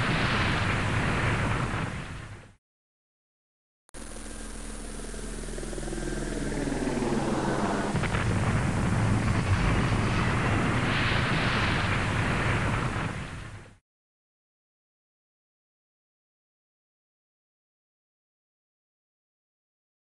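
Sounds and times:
rising sweep into rumbling roar: 4.0s - 13.2s.

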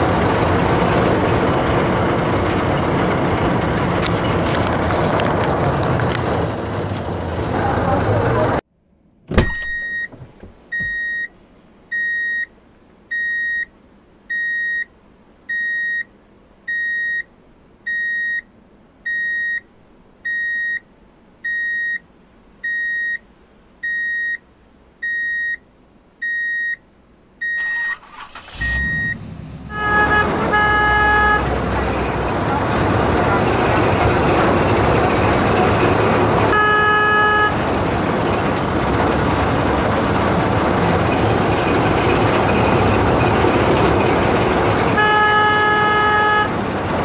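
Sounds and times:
vehicle rumble: 0.0s - 26.3s, 26.9s - 47.0s
reversing alarm beeping: 9.6s - 11.3s
vehicle horn: 29.7s - 34.0s, 36.5s - 37.7s, 44.9s - 46.6s.

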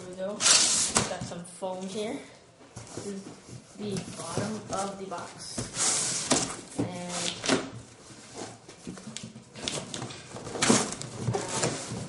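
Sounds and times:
styrofoam and cardboard handled: 2.8s - 12.0s.

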